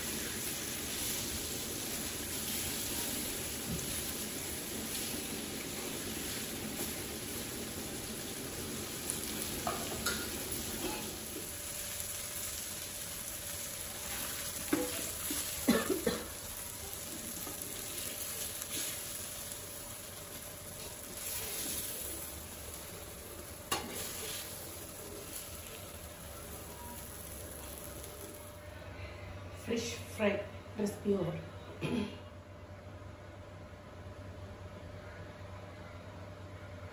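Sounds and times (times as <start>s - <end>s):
fish sizzling in oil: 0.0s - 28.6s.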